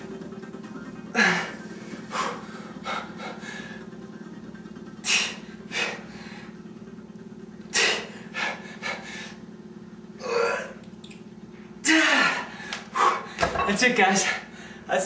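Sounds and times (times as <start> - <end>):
steady low hum: 0.0 - 15.0
man breathing hard: 1.1 - 4.1, 5.0 - 6.7, 7.7 - 9.5, 11.8 - 13.4, 14.2 - 14.9.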